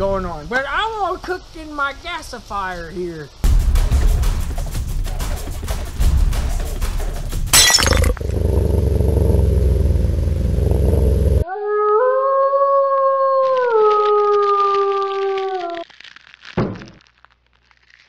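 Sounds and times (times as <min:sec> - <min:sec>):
low rumble: 0:08.0 - 0:11.4
wolf howl: 0:11.4 - 0:15.8.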